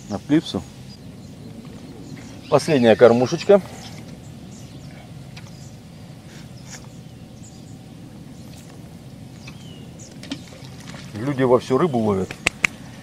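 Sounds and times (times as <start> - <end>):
faint bird chirps: 0.0 - 10.8
river background hum: 0.0 - 13.0.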